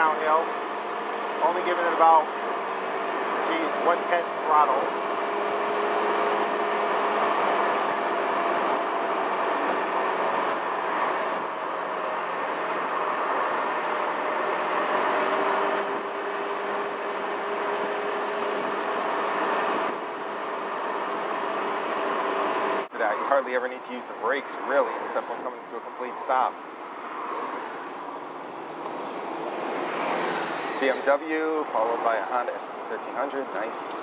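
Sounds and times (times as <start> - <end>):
wind and road noise: 0.0 - 34.0.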